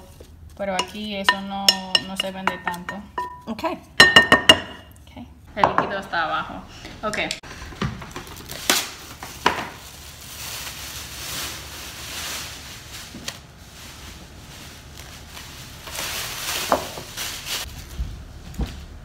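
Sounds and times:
plastic film crinkling: 8.0s - 18.8s.

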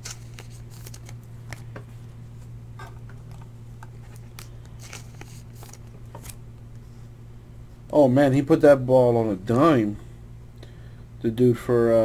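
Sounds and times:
cards being flipped through: 0.0s - 1.8s, 3.1s - 6.4s.

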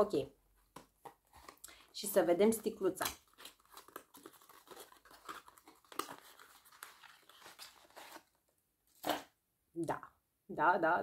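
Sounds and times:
packaging rustling and crinkling: 3.0s - 9.3s.

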